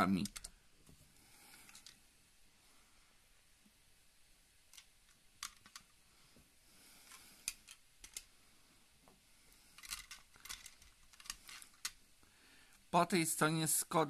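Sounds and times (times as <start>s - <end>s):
model cars clicking on cloth: 4.7s - 6.0s, 7.1s - 8.3s, 9.8s - 12.0s.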